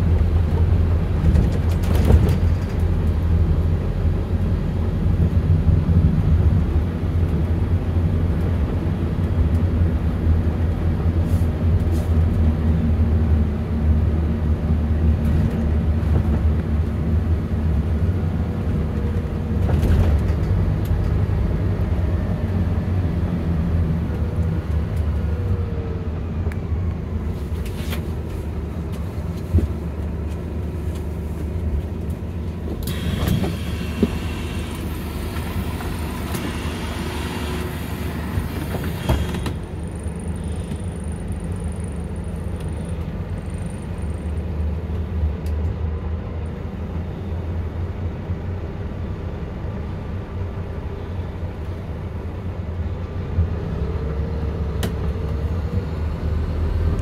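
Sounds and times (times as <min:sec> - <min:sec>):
bus engine rumbling: 0:00.0 - 0:57.0.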